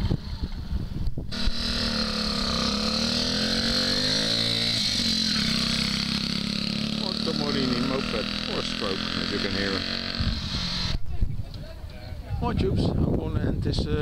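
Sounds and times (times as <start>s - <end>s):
moped engine buzzing past: 1.3s - 11.0s.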